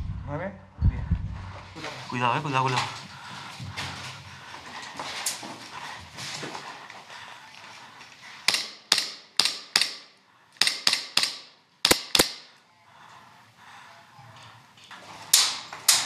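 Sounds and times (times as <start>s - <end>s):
airsoft gun shots: 8.5s - 12.5s.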